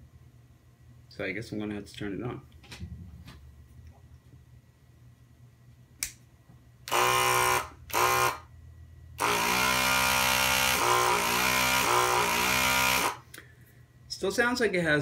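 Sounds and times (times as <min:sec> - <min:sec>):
click: 0:06.0 - 0:06.2
vacuum pump buzzing: 0:06.8 - 0:08.5, 0:09.2 - 0:13.3.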